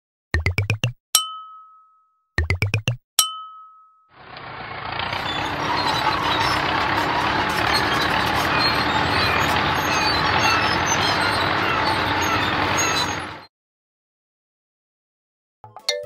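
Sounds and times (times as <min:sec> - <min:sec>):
cartoon road roller engine: 0:04.2 - 0:13.5.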